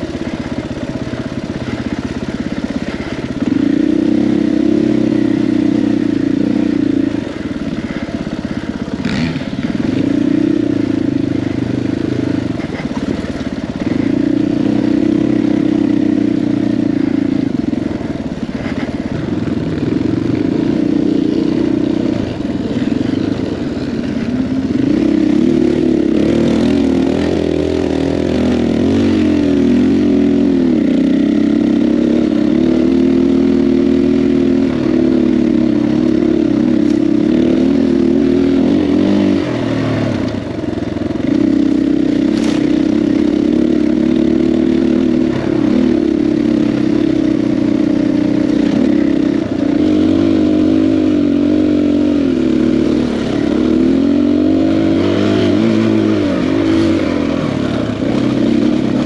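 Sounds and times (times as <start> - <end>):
dirt bike engine: 0.0 - 59.0.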